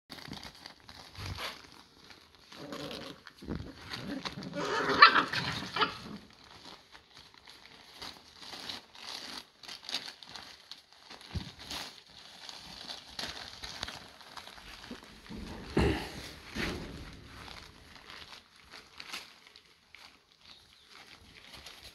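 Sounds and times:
newspaper rustling: 0.1s - 21.9s
puppies scuffling: 0.2s - 21.9s
puppy play vocalizations: 2.4s - 6.7s.

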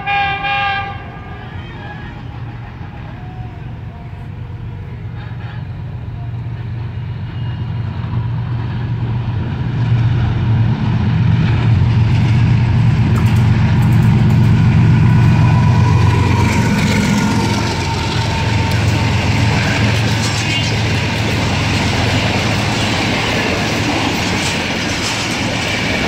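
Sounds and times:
diesel locomotive engine rumble: 0.0s - 26.0s.

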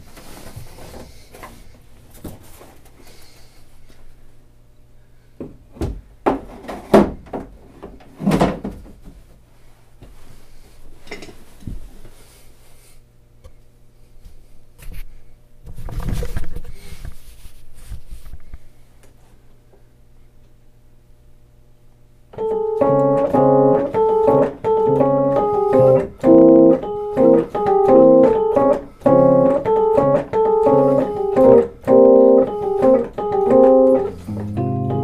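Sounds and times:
steady low hum: 16.3s - 35.0s.

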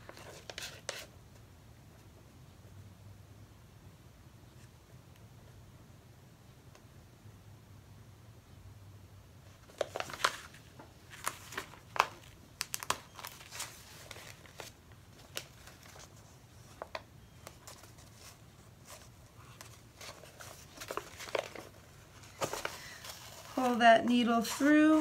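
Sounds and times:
paper rustling and crinkling: 0.0s - 1.1s, 9.5s - 25.0s.

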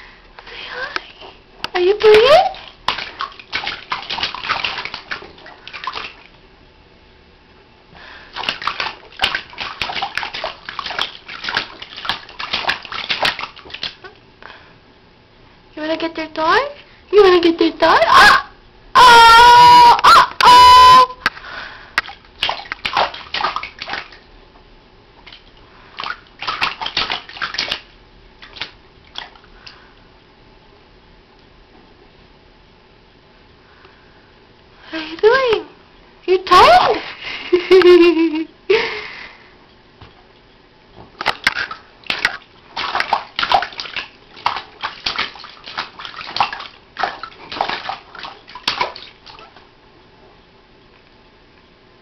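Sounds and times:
baby splashing water: 2.0s - 6.3s, 8.3s - 14.2s, 22.0s - 24.2s, 25.2s - 29.8s, 41.2s - 49.6s.

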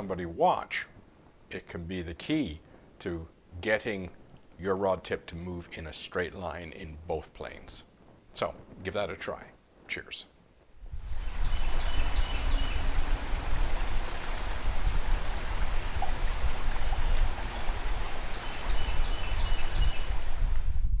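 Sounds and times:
river water rushing: 11.1s - 20.5s.

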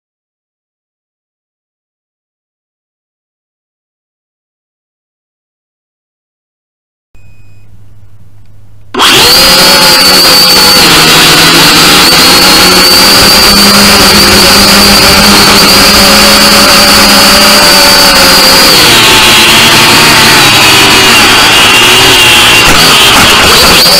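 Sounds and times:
drone propellers whining: 9.0s - 23.9s.

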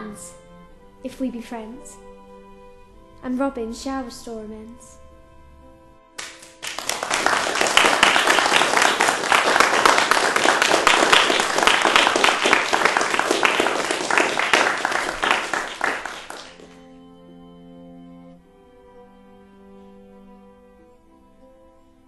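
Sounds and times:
audience clapping: 6.2s - 16.8s.

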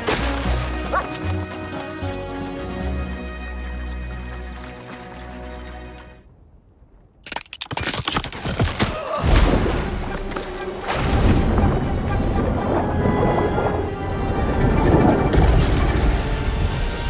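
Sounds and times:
ice cracking: 0.0s - 2.0s, 7.2s - 9.5s
orchestral film music: 0.0s - 6.4s, 9.1s - 17.0s.

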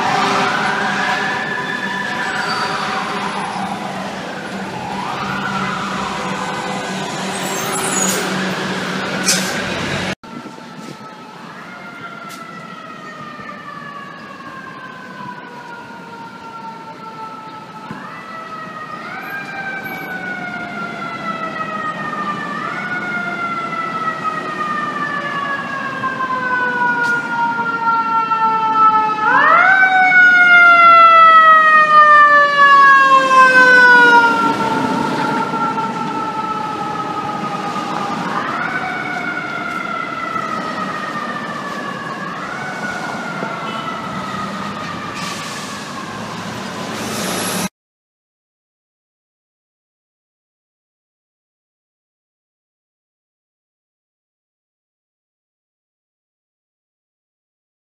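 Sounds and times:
fire engine siren wailing: 0.0s - 47.7s
street traffic: 0.0s - 47.7s.

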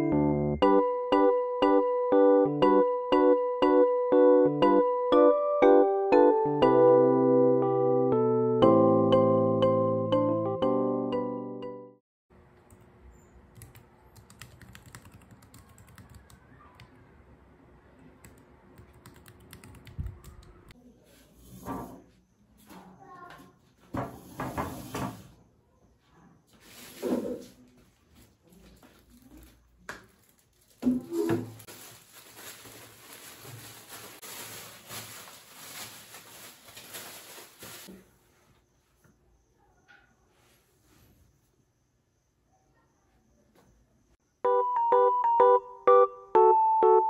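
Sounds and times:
plastic wrapping crinkling: 28.1s - 37.9s.

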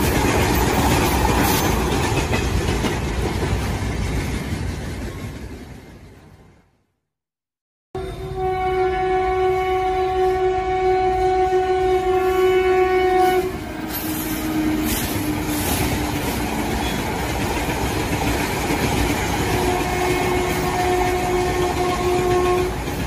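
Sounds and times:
train wheels rumbling on rails: 0.0s - 6.7s, 10.6s - 23.0s
train horn: 8.0s - 17.0s, 19.4s - 23.0s.

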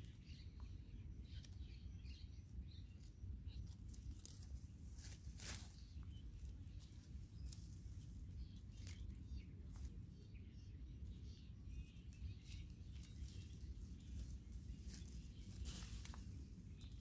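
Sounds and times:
low steady rumble: 0.0s - 17.0s
rustling shrub leaves: 2.9s - 10.2s, 10.9s - 17.0s
twigs crackling: 3.6s - 9.9s, 12.4s - 17.0s.

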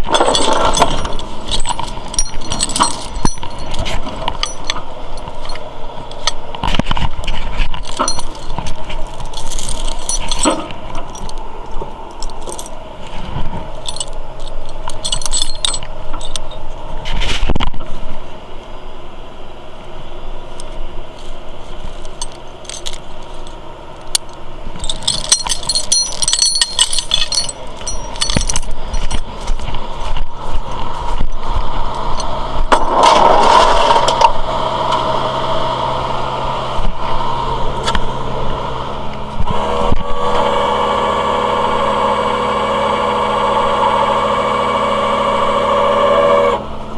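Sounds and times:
metal chain clinking and rattling: 0.0s - 6.4s, 7.5s - 11.5s, 12.1s - 12.8s, 13.7s - 16.8s, 21.2s - 32.4s
truck engine running: 0.0s - 17.2s, 17.8s - 46.9s.

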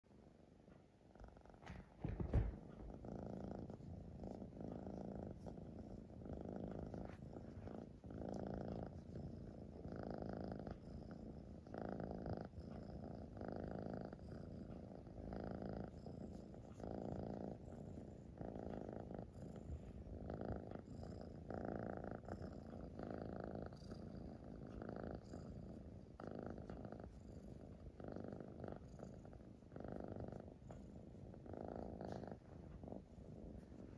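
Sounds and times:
cat purring: 0.1s - 33.9s
low thump: 1.6s - 2.8s.

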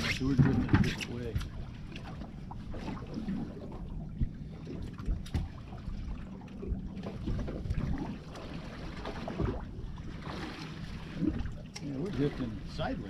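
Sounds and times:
boat low rumble: 0.0s - 13.0s
water noise: 0.0s - 13.0s
sharp knocks on boat: 0.3s - 1.5s, 5.0s - 5.6s.

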